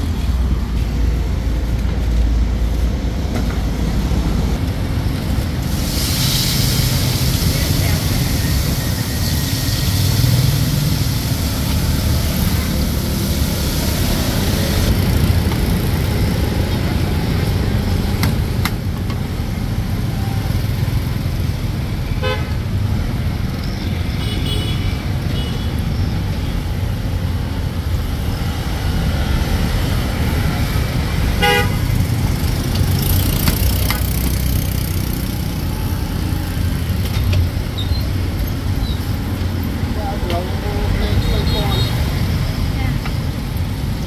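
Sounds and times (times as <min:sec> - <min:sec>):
street traffic rumble: 0:00.0 - 0:44.0
vehicle horn toots: 0:22.2 - 0:22.5, 0:24.2 - 0:25.7, 0:31.4 - 0:31.9.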